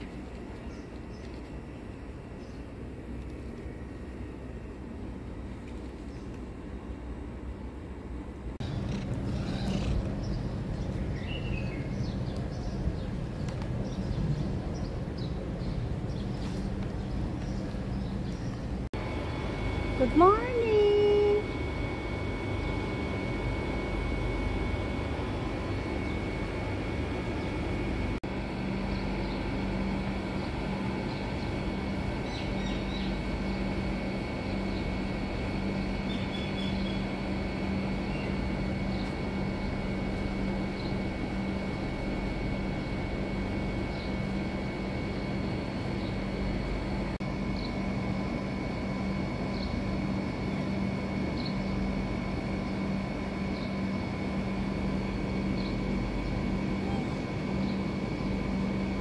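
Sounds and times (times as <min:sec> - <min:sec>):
street background rumble: 0:00.0 - 0:22.0
steady low hum: 0:00.0 - 0:59.0.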